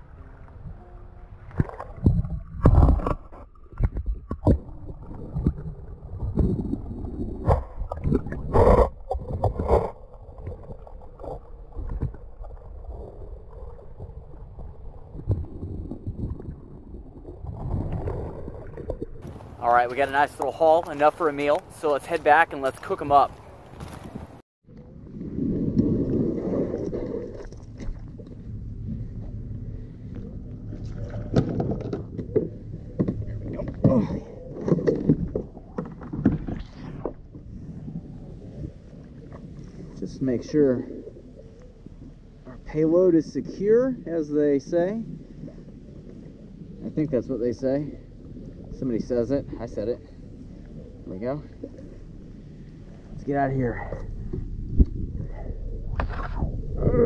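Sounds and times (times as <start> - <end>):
muffled underwater gurgling: 0.0 - 57.0
kayak hull scraping on gravel: 19.2 - 24.4.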